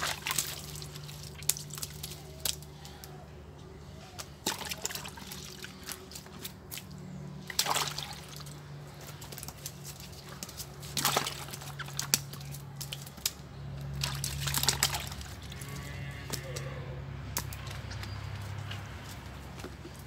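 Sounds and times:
water splashing in plastic bucket: 0.0 - 2.7, 4.4 - 15.4.

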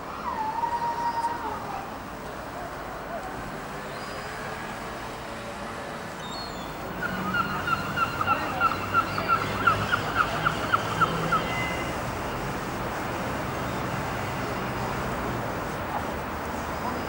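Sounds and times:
gull yelping calls: 7.0 - 11.8.

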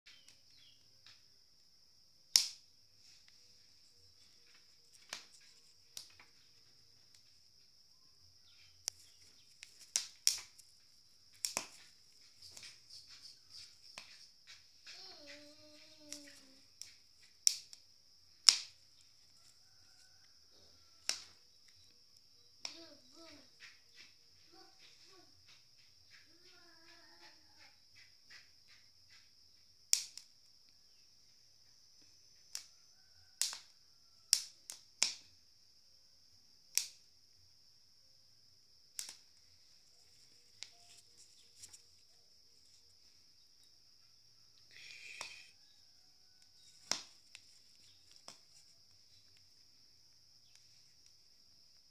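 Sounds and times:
charcoal fire crackling: 0.2 - 24.8, 29.8 - 30.6, 33.4 - 33.7, 34.3 - 35.4, 38.8 - 43.7, 46.4 - 51.9
high-pitched hiss: 2.5 - 21.8, 44.6 - 51.9
short chicken-like call: 44.6 - 45.9.

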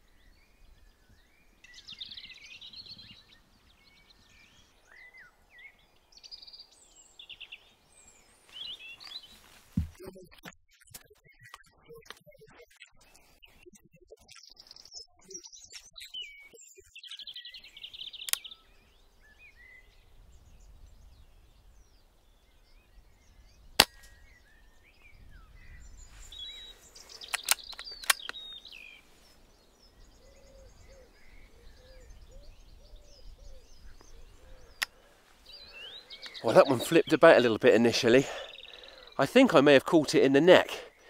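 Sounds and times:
birds chirping: 0.0 - 10.3, 13.0 - 41.0
air rifle shot: 23.8 - 24.2
clicks: 27.3 - 28.4.

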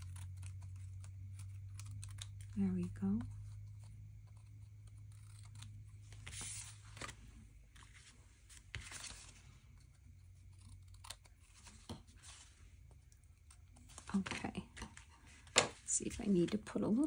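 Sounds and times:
scissors cutting paper: 0.0 - 7.1, 8.7 - 12.4
paper rustling: 5.2 - 9.9, 11.0 - 12.7.

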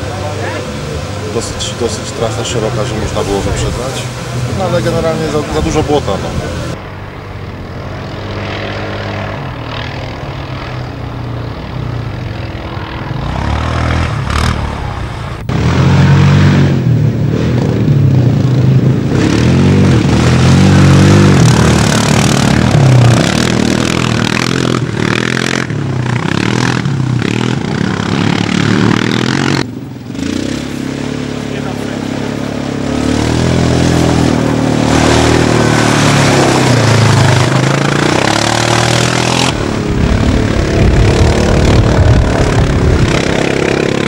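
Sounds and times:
quad bike engines revving: 0.0 - 44.0.

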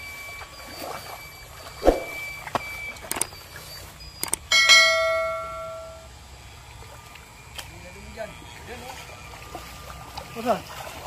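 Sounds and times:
bell-like notification chime: 4.5 - 6.0.

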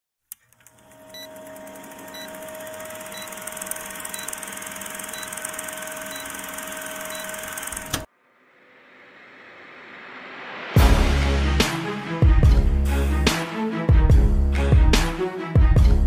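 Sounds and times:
film projector whirring and clattering: 0.4 - 8.1.

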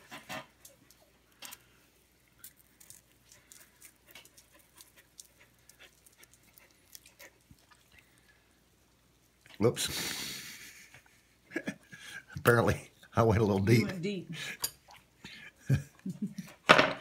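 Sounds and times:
dog panting: 0.0 - 1.1, 3.3 - 7.5.

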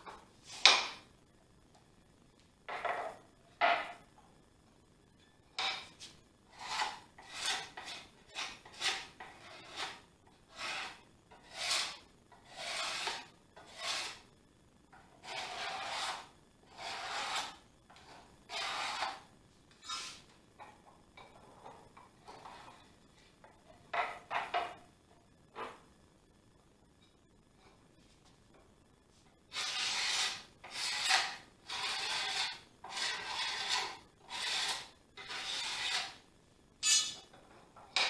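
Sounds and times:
card scraper rasping on wood: 6.6 - 14.2, 15.2 - 17.6, 18.5 - 19.2, 29.5 - 36.2.

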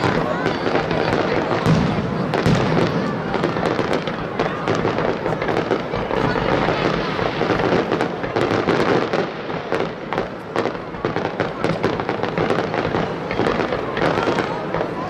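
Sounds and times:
constant rush: 0.0 - 15.0
fireworks bangs and crackles: 0.0 - 15.0.

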